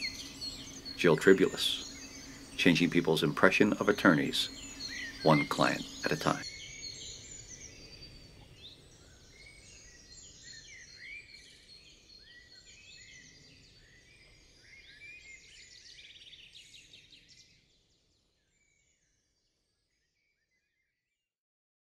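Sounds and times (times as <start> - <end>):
birds chirping and whistling: 0.0 - 17.6
soft outdoor background hiss: 0.0 - 20.6.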